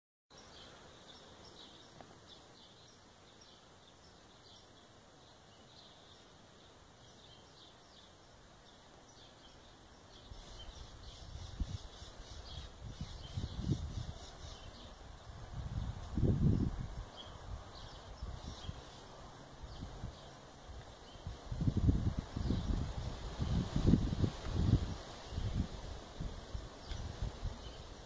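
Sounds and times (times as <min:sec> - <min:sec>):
small birds chirping: 0:00.3 - 0:25.7, 0:26.6 - 0:28.0
low rumble on microphone: 0:10.2 - 0:19.0, 0:19.6 - 0:28.0.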